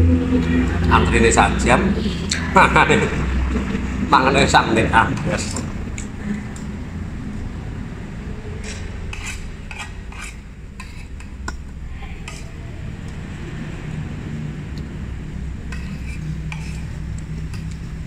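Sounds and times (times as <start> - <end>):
low steady hum: 0.0 - 18.0
cutlery scraping a plate: 8.6 - 11.4, 12.2 - 12.5, 15.7 - 17.7.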